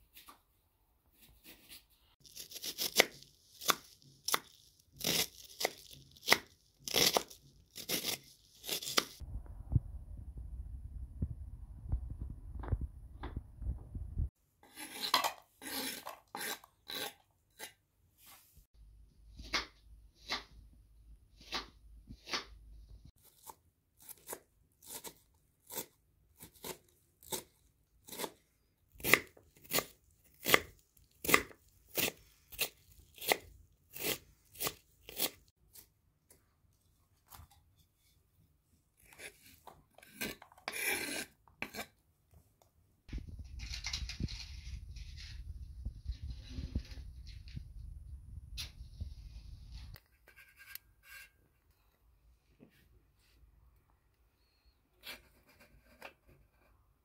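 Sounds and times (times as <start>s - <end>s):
wind rumbling on microphone: 9.2s - 14.3s, 43.1s - 50.0s
scraping food into steel pot: 49.8s - 51.4s.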